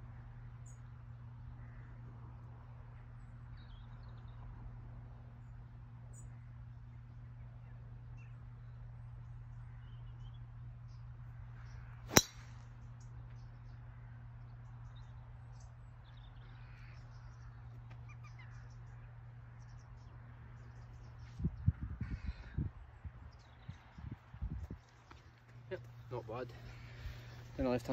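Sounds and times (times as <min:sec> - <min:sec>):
golf club striking ball: 0:12.1 - 0:12.6.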